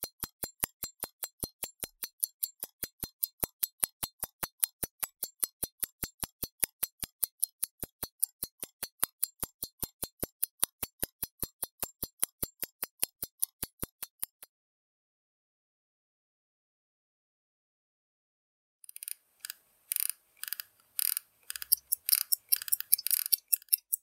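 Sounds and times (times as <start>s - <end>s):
pocket watch ticking: 0.0s - 14.5s, 18.8s - 24.0s.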